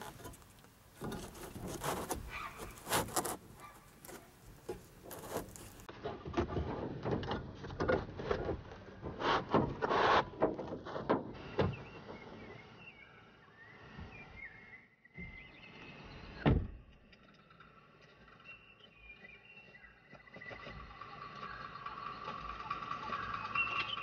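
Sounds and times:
wires rustling and knocking: 0.0s - 9.8s.

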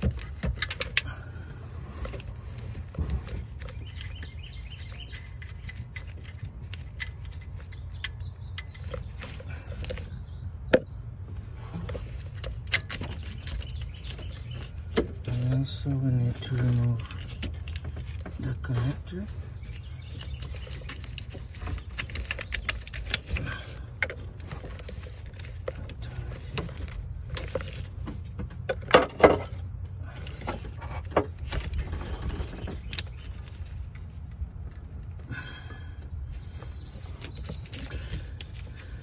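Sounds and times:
clicks and rattles of electrical connector: 0.0s - 1.1s, 3.5s - 10.1s, 16.6s - 18.4s, 19.6s - 29.6s.

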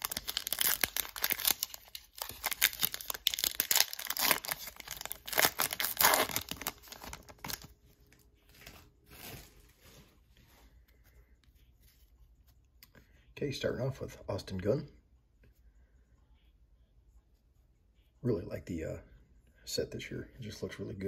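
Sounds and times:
card pack wrapper crinkling: 0.0s - 7.8s.

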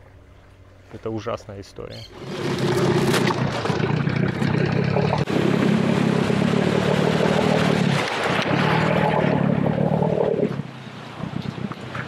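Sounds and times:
outboard motor running: 2.1s - 10.6s
water splashing against hull: 2.1s - 12.0s
wind on microphone: 5.2s - 12.0s.

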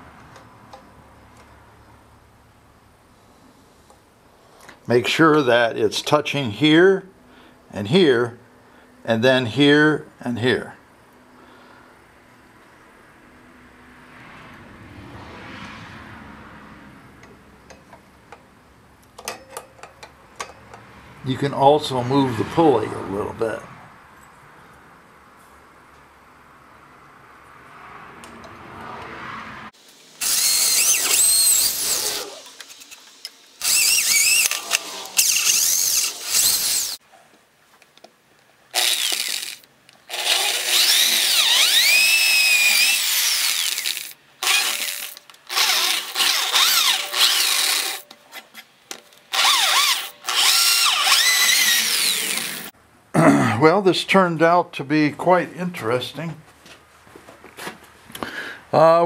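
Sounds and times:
electric drill boring into wood: 30.2s - 37.0s, 38.8s - 48.0s, 49.3s - 52.7s.

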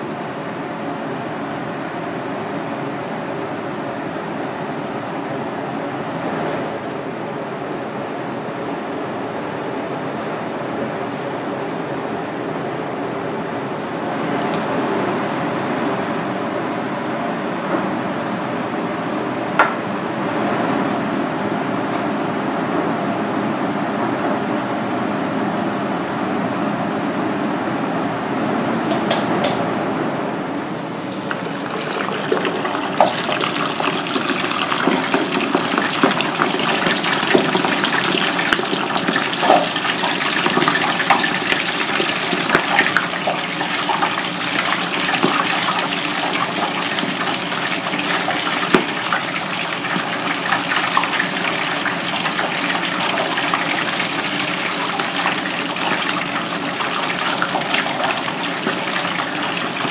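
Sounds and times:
fish deep-frying in oil: 30.5s - 59.9s.

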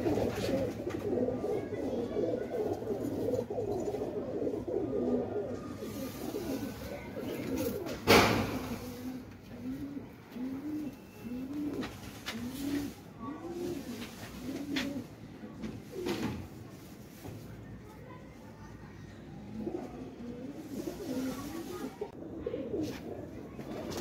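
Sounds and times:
pigeons cooing: 0.0s - 16.5s, 19.4s - 24.0s.

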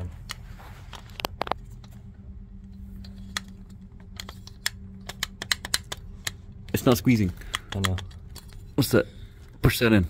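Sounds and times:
steady low hum: 0.0s - 10.0s
metallic gun parts clicking: 7.4s - 8.6s.

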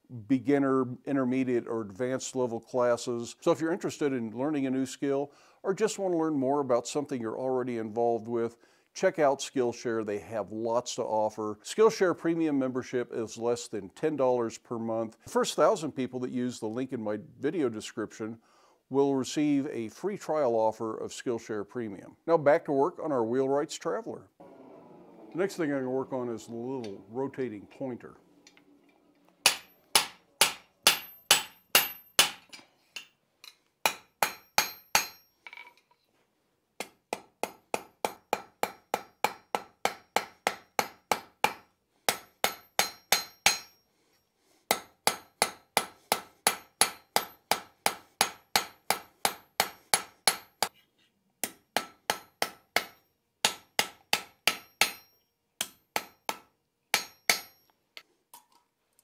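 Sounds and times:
hammer striking steel on anvil: 29.4s - 33.1s, 33.8s - 35.3s, 36.8s - 43.8s, 44.7s - 50.7s, 51.4s - 57.7s.

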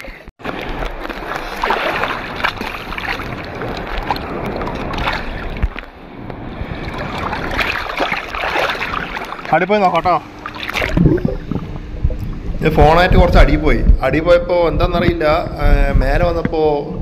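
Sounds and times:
constant wash of water: 0.4s - 12.6s
water splashing: 0.4s - 13.1s.

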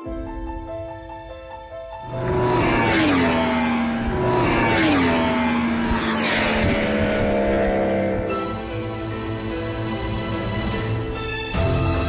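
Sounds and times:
motorcycle engine passing at speed: 2.0s - 9.9s.

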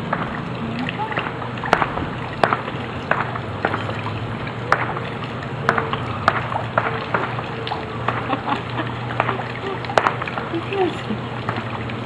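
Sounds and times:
pool water sloshing: 0.0s - 12.0s
steady low hum: 0.0s - 12.0s.

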